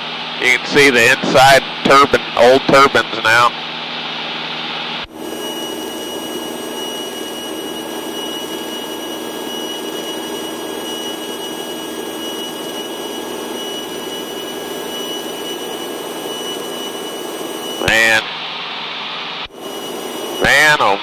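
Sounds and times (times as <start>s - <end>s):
airplane engine droning: 0.0s - 21.0s
thin high whine: 5.0s - 21.0s.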